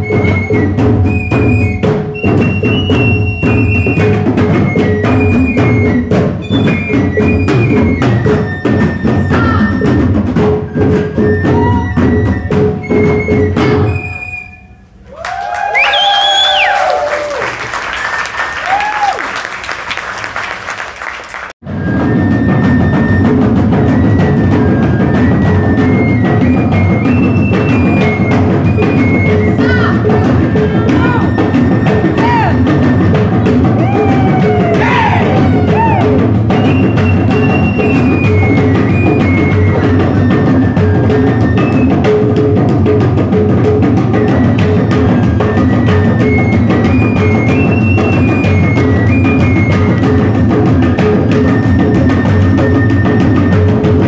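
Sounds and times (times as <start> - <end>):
hand drums fast rhythm: 0.0 - 13.8, 22.5 - 54.0
bamboo flute melody: 0.0 - 19.3, 21.6 - 54.0
applause: 15.1 - 21.6.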